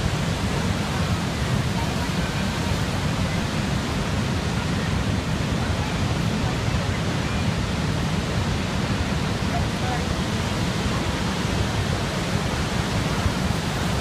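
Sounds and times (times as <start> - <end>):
waterfall rushing: 0.0 - 14.0.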